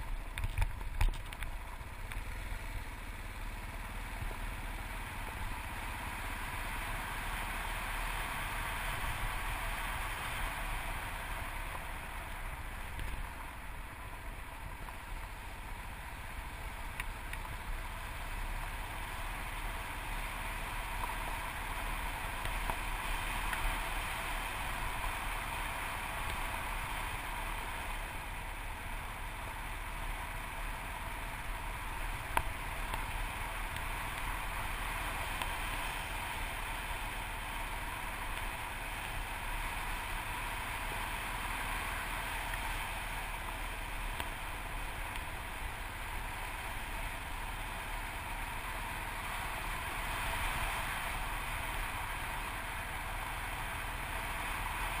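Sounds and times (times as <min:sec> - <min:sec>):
motorcycle riding on gravel: 0:00.0 - 0:55.0.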